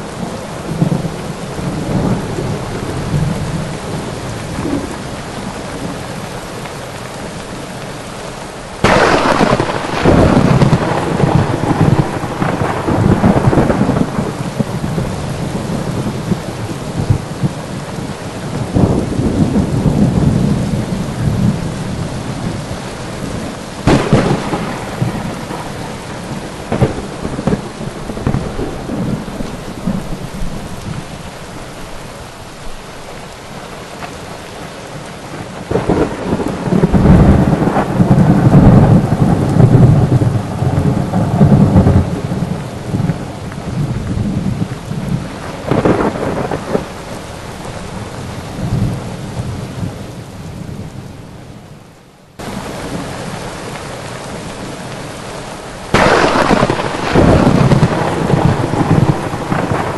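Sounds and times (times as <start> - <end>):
rolling thunder: 0.0 - 6.1, 8.8 - 31.1, 35.3 - 50.0, 55.9 - 59.9
rain falling: 0.0 - 59.9
sharp thunder crack: 8.8 - 15.1, 23.8 - 30.6, 35.7 - 43.1, 55.9 - 59.9.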